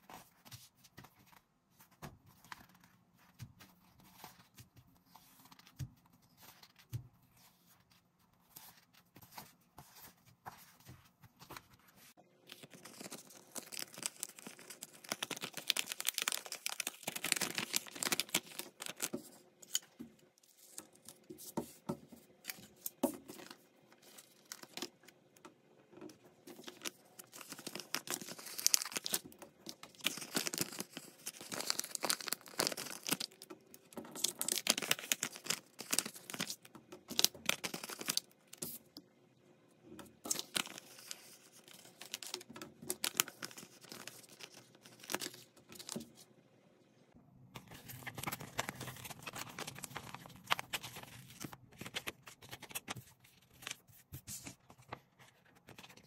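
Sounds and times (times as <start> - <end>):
stickers peeling and crinkling: 12.5 - 19.9, 26.4 - 38.8, 40.2 - 46.0, 47.6 - 56.0.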